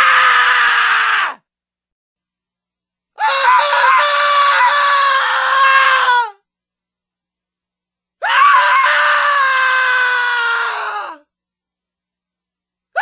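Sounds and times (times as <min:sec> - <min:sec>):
long held scream: 0:00.0 - 0:01.5, 0:03.2 - 0:06.4, 0:08.2 - 0:11.3.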